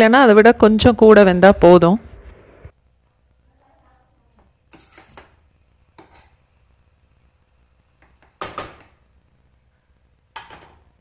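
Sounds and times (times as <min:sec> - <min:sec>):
spoon scraping metal pot: 0:04.7 - 0:05.2, 0:06.0 - 0:06.4.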